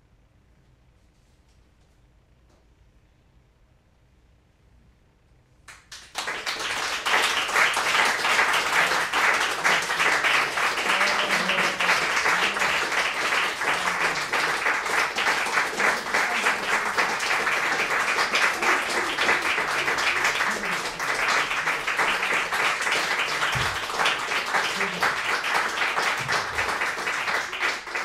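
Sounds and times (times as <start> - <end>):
audience applause: 5.7 - 28.0
single claps: 5.7 - 28.0.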